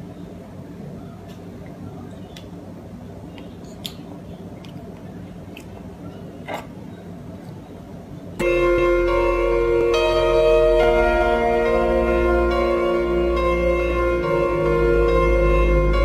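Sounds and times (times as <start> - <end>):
loud music with held notes: 8.4 - 16.0.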